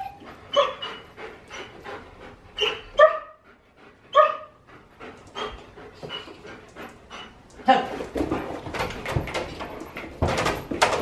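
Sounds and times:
dog barking: 3.0 - 3.4, 4.1 - 4.6.

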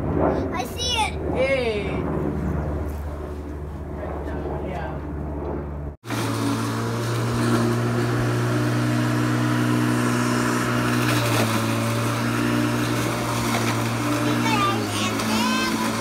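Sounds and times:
electric lawn mower humming: 6.0 - 16.0.

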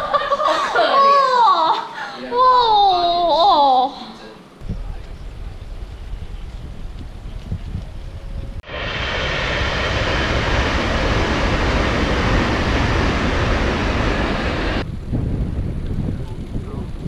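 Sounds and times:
wind rumble on microphone: 4.6 - 17.0
train rushing past: 8.5 - 14.9.

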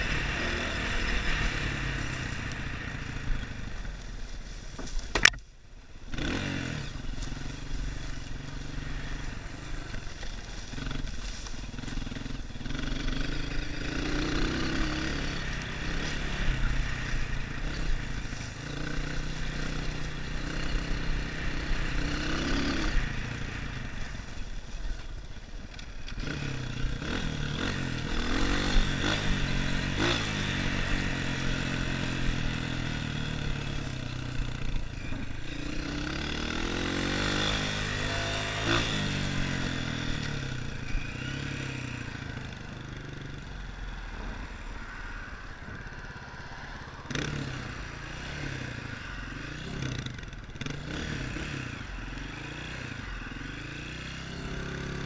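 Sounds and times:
dirt bike engine revving: 0.0 - 4.0, 6.0 - 25.0, 25.8 - 55.0
sharp knocks from bike: 4.7 - 5.5.

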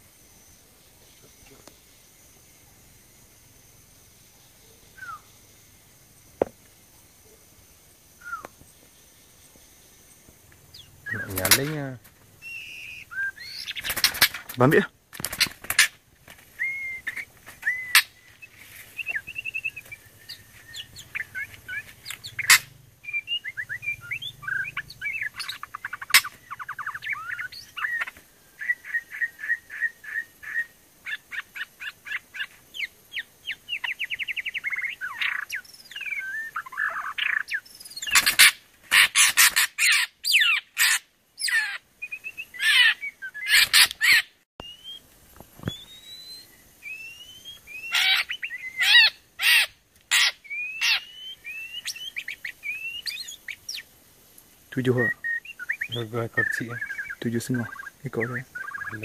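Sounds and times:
bird chirps and trills: 4.5 - 5.5, 10.7 - 45.0, 45.6 - 53.9, 54.8 - 59.0
rising whistled bird notes: 4.8 - 5.4, 8.2 - 8.5, 10.7 - 13.9, 16.6 - 30.7, 32.8 - 38.2, 44.6 - 45.0, 45.6 - 49.2, 50.2 - 53.9, 54.8 - 59.0
harsh bird calls: 10.6 - 54.0, 54.7 - 59.0.

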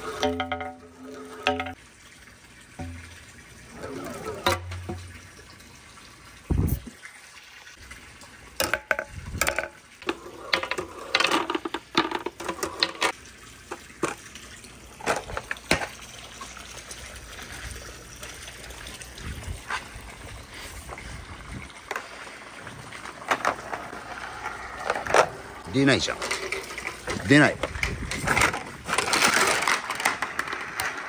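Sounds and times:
marbles clacking down a wooden run: 0.0 - 1.8, 8.6 - 13.2, 23.3 - 31.0
running water: 0.0 - 31.0.

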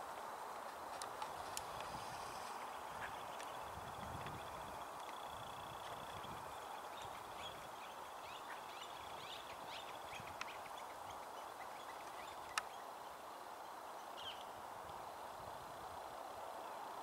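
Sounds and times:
steady hiss: 0.0 - 17.0
small tick: 12.0 - 12.7.

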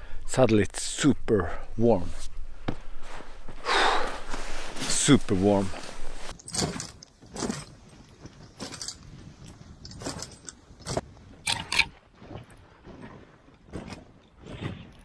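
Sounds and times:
low hiss of runners on snow: 1.7 - 6.4.

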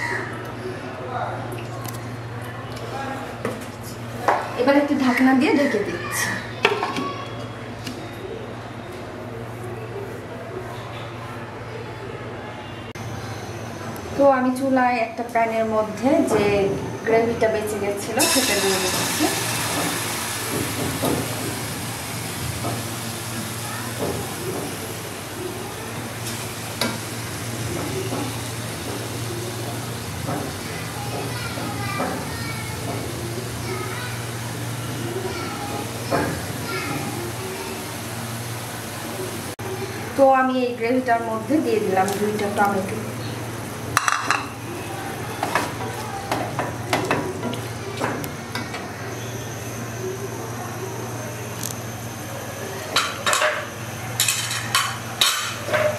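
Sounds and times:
gravy sizzling in a pan: 18.2 - 40.7.

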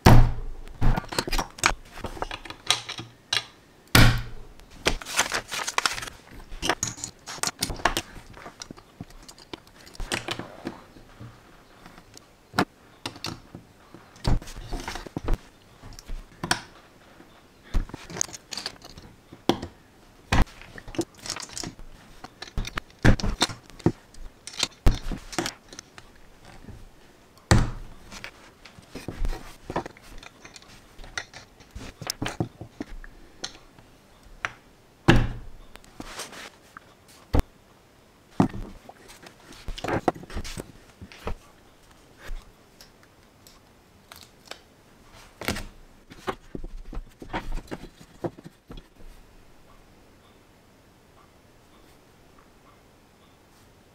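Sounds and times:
plastic bricks clicking and rattling: 17.8 - 19.7, 20.4 - 26.7, 29.6 - 33.6.

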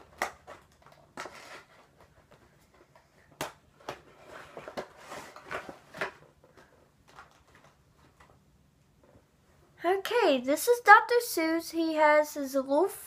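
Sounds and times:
packaging rustling: 3.7 - 8.4.

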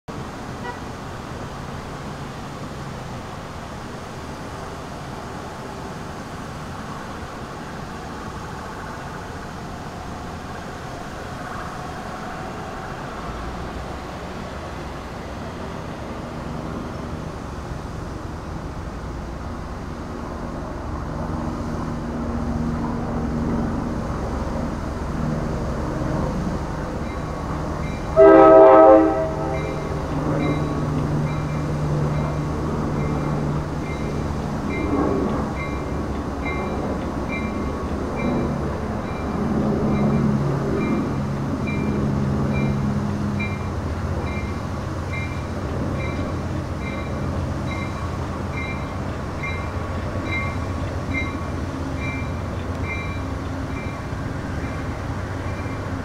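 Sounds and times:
train rumbling: 0.1 - 56.0
train horn blast: 0.6 - 0.9, 28.1 - 30.8.

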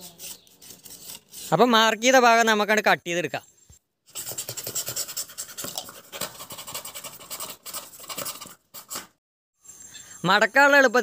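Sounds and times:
knife slicing cardboard: 4.2 - 9.2.

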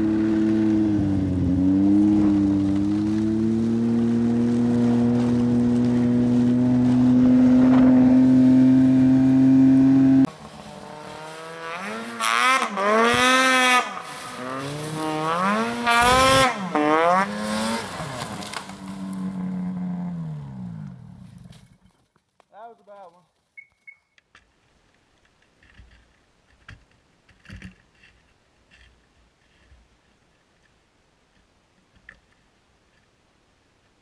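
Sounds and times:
snowmobile engine revving: 0.0 - 21.6
snowmobile engine running: 0.0 - 21.6.

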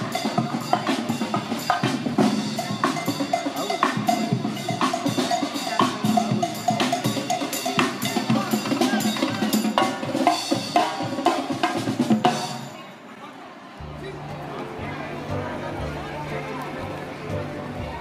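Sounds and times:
drum kit music: 0.0 - 12.8.

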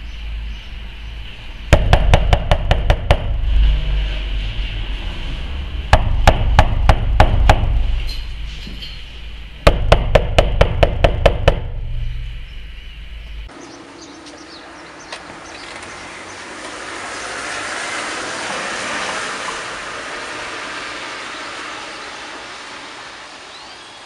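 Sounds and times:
heavy low rumble: 0.0 - 13.5
sharp knocking impacts: 1.7 - 3.5, 5.9 - 8.0, 9.6 - 12.4.

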